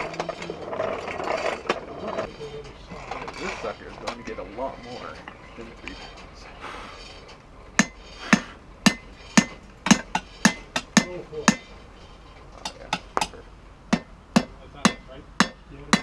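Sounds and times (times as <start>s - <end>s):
hammer striking metal on anvil: 7.8s - 11.7s, 12.6s - 16.0s.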